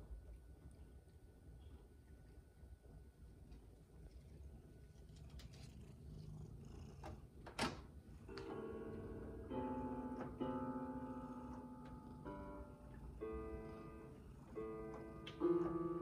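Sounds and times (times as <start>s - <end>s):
cat purring: 3.0s - 7.4s, 8.0s - 16.0s.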